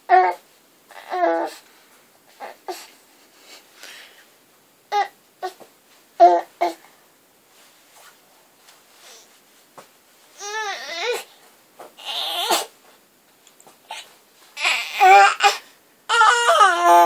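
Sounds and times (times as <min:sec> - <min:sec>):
baby babbling: 0:00.1 - 0:01.6, 0:10.4 - 0:11.3, 0:13.9 - 0:17.0.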